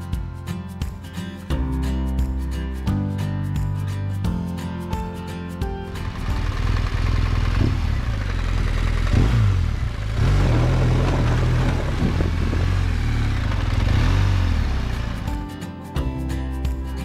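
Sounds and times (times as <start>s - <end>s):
motorcycle engine revving: 5.9s - 15.5s.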